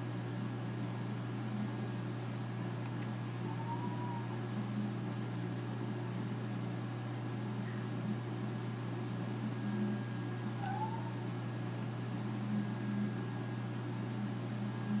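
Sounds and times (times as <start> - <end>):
steady low hum: 0.0 - 15.0
cat meowing: 3.5 - 4.4, 10.6 - 11.2.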